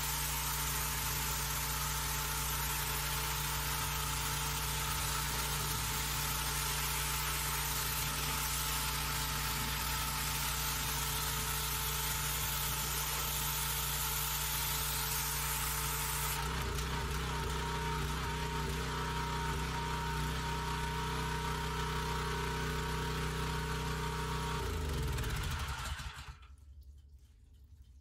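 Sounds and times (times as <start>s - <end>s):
pressure washer spraying: 0.0s - 22.3s.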